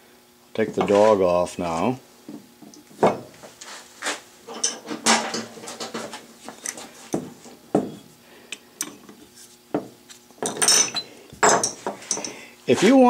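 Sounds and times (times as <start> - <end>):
metal clinks and scrapes: 4.5 - 6.8, 10.4 - 12.4.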